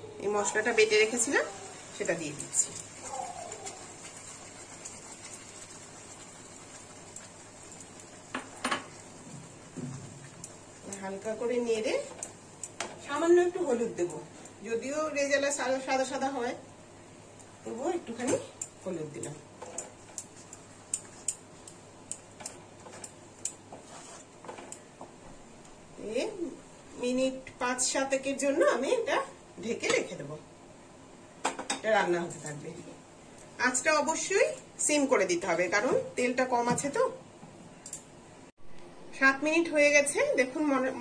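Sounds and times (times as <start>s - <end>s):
spice paste sizzling in oil: 0.3s - 25.0s
wooden spatula clicking in pan: 18.6s - 23.6s.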